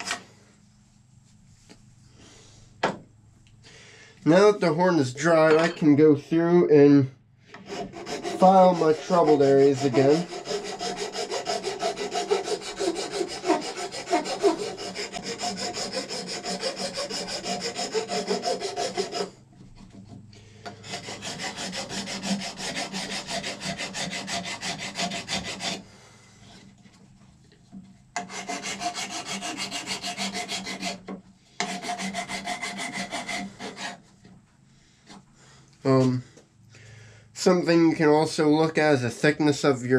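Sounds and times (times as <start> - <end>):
hand file rasping on horn: 7.5 - 26.7, 28.2 - 34.3.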